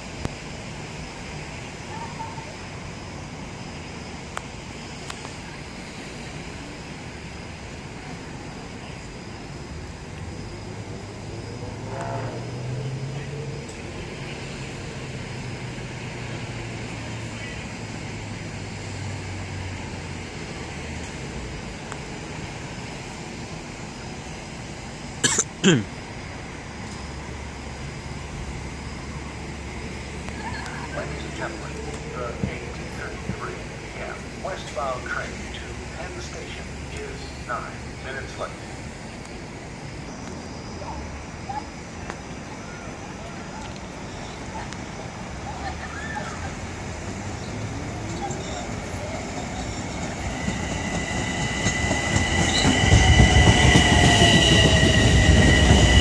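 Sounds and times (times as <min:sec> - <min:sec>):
outdoor rumble and hiss: 0:00.0 - 0:56.0
steady background noise: 0:00.0 - 0:56.0
person coughing: 0:25.2 - 0:25.9.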